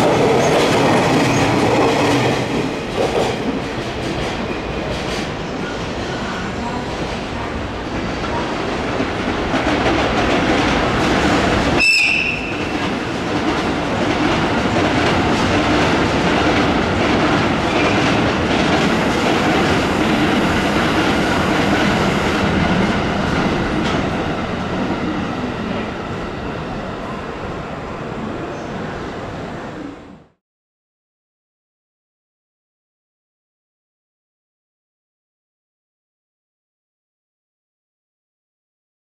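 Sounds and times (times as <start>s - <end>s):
train wheels rumbling and clattering: 0.0s - 27.4s.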